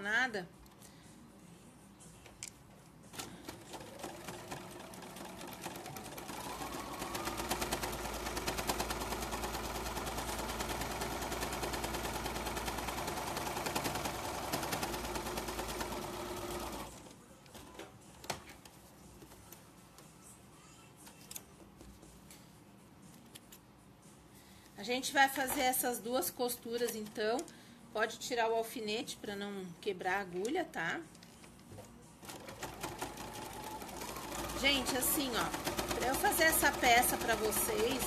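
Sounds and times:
electric sewing machine stitching: 3.4 - 17.0, 32.3 - 38.0.

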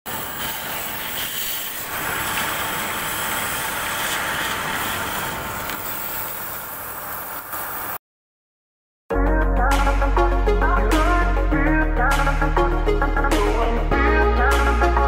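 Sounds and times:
gas torch flame hissing: 0.1 - 8.0.

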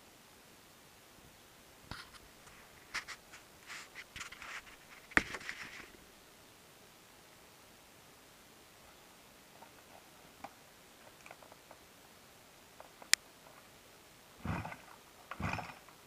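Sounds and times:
camera handling scrapes and clicks: 2.9 - 5.9.

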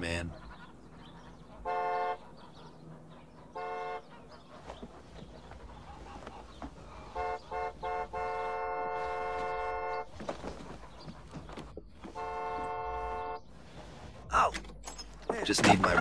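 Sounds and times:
vehicle horn honking: 1.6 - 2.3, 3.5 - 4.2, 7.1 - 10.2, 12.1 - 13.5.

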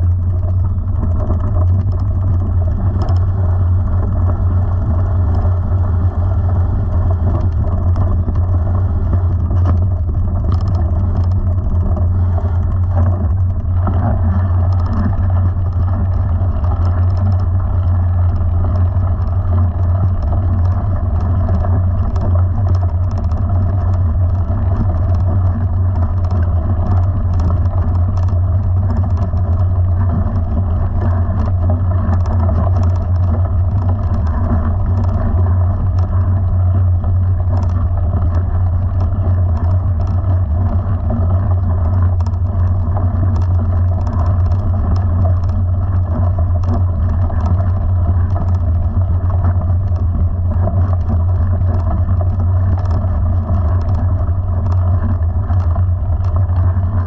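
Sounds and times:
small motor droning: 0.0 - 57.0
tyres crackling over gravel: 0.0 - 57.0.

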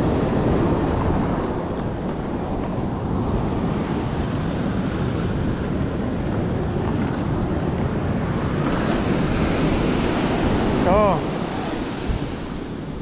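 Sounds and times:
ocean surf breaking: 0.0 - 13.0
wind rumbling on microphone: 0.0 - 13.0.

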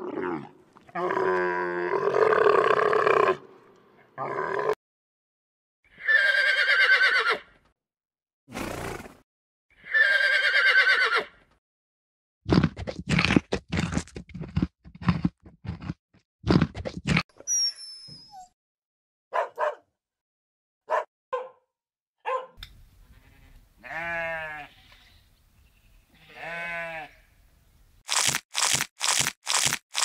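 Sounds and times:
husky barking: 19.3 - 19.9, 20.9 - 21.6, 22.2 - 22.6
sheep bleating: 23.1 - 25.2, 26.1 - 27.3
yak cropping grass: 28.1 - 30.0.

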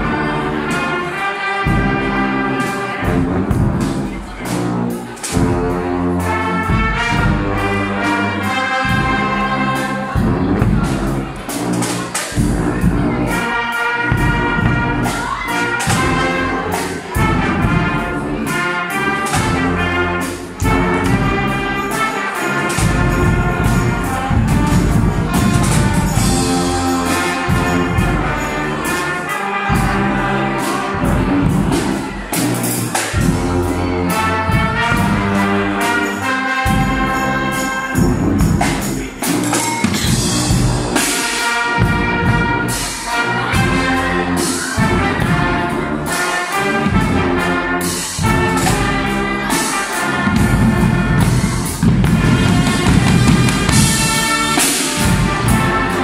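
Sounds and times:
brass instruments playing: 0.0 - 56.0
bass drums beating: 1.7 - 7.8, 8.9 - 11.8, 12.4 - 13.4, 31.0 - 35.7, 38.0 - 41.1, 50.2 - 56.0.

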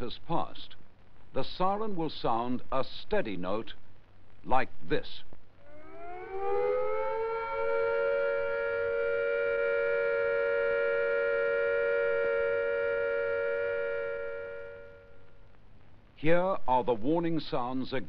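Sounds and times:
siren winding up and holding: 5.6 - 15.1.

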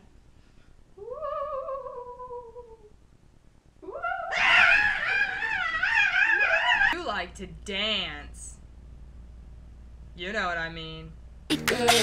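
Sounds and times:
loud wavering wail: 3.8 - 7.0.

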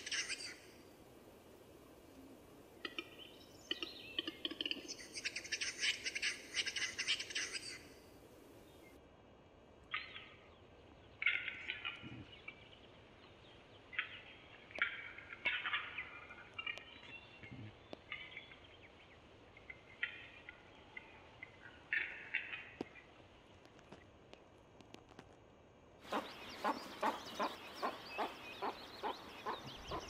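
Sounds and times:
bird rough hissing song: 26.1 - 30.0.

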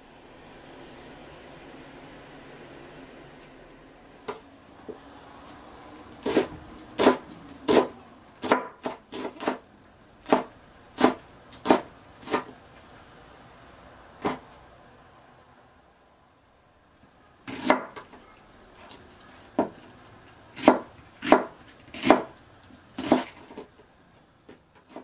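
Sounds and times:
knife chopping on plastic board: 6.2 - 9.6, 10.2 - 12.5, 17.5 - 18.1, 20.5 - 22.4, 23.0 - 23.7.

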